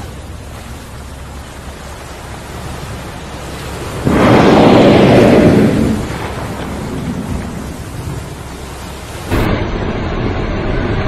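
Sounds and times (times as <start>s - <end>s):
low rumble of water and air: 0.0s - 11.0s
steady rumbling noise: 0.0s - 11.0s
whale exhaling through blowhole: 4.0s - 8.2s.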